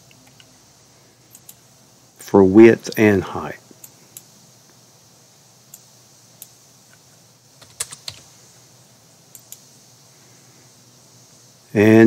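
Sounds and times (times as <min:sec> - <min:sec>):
keyboard keystrokes: 0:07.6 - 0:08.3.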